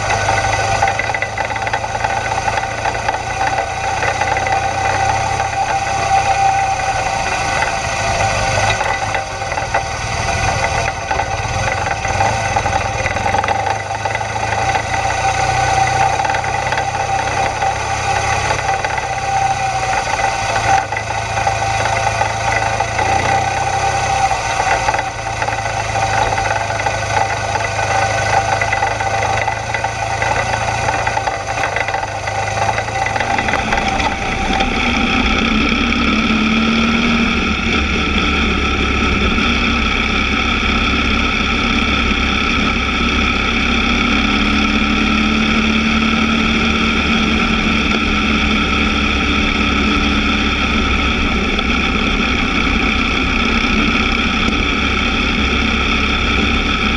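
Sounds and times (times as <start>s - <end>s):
motorcycle engine running: 0.0s - 56.9s.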